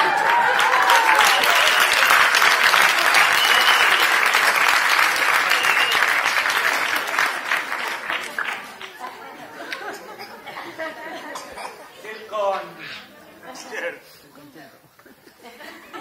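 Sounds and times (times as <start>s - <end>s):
audience applauding: 0.0s - 10.0s
hands clapping close by: 0.1s - 8.9s.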